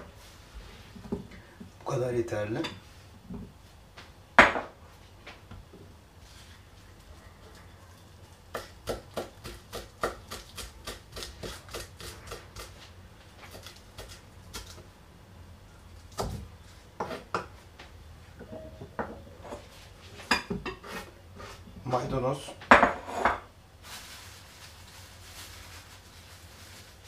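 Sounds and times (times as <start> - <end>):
knife chopping on wooden board: 8.5 - 12.7.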